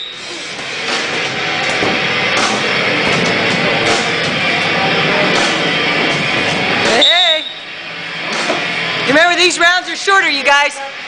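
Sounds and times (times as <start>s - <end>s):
heavy rock music with guitar: 0.4s - 7.0s.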